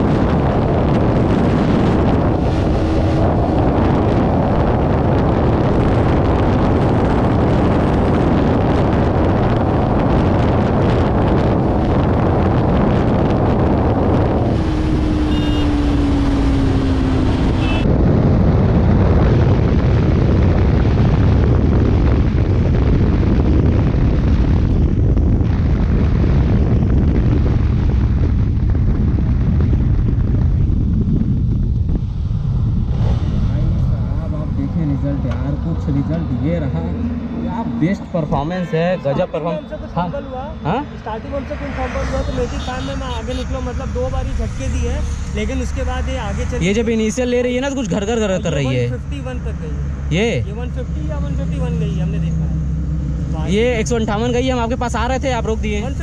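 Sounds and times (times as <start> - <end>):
motorcycle engine at full speed: 0.0 - 38.0
wind rush on microphone: 0.0 - 56.0.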